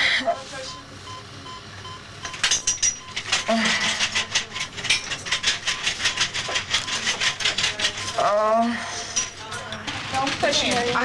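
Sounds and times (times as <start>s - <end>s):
woman panting rapidly: 3.4s - 4.3s.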